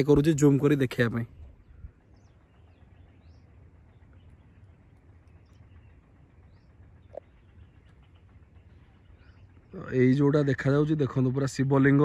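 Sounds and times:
low background rumble: 0:00.0 - 0:12.0.

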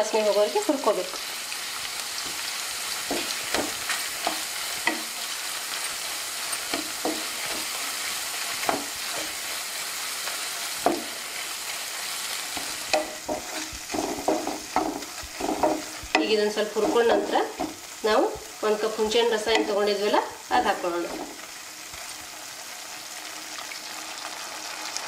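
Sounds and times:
paste sizzling in hot oil: 0:00.0 - 0:25.0
wooden spatula scraping a pan: 0:01.9 - 0:20.0, 0:20.7 - 0:22.1.

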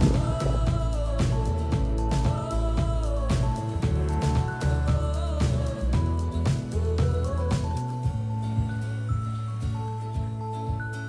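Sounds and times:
background music with steady beat: 0:00.0 - 0:11.0.

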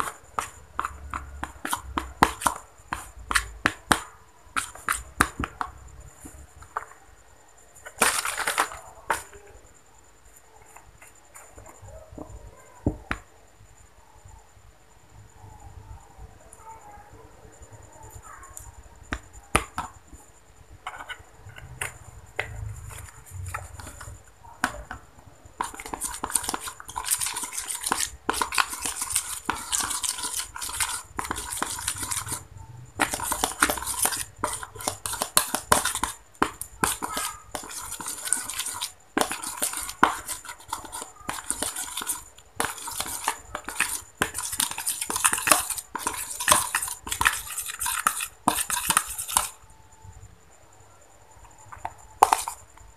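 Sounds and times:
spoon stirring in plastic bowl: 0:00.0 - 0:07.0, 0:07.8 - 0:09.5, 0:18.1 - 0:49.6, 0:51.4 - 0:52.9.

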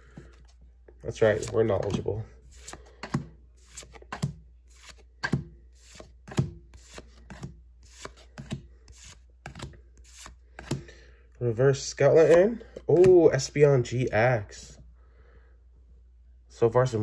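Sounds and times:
cards sliding off a stack: 0:01.3 - 0:10.9.

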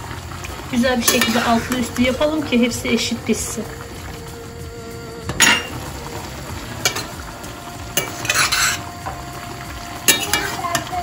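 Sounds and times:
liquid simmering: 0:00.0 - 0:11.0
metal spoon scraping a pot: 0:01.0 - 0:02.1, 0:07.9 - 0:09.0
glass lid clattering: 0:05.3 - 0:05.8, 0:08.0 - 0:08.9.

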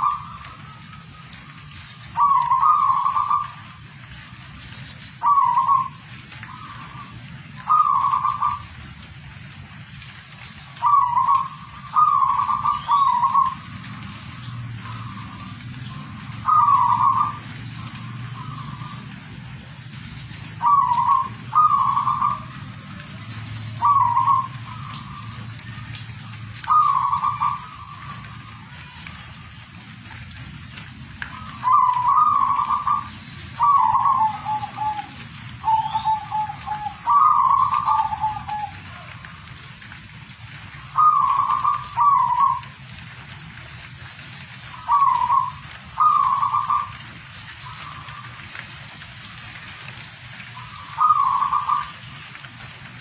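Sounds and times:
dove cooing: 0:00.0 - 0:04.1, 0:05.2 - 0:08.8, 0:10.8 - 0:19.2, 0:20.6 - 0:28.8, 0:31.2 - 0:39.8, 0:40.5 - 0:42.9, 0:44.6 - 0:48.6, 0:50.4 - 0:52.3
steady background hiss: 0:00.0 - 0:53.0.

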